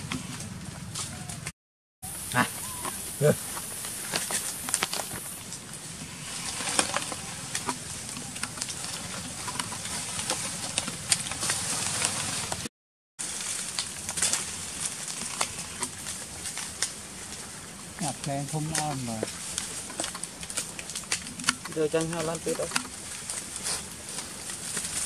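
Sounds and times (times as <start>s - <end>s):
steady hiss: 2.1s - 7.0s
leaves clicking and rustling: 2.1s - 25.0s.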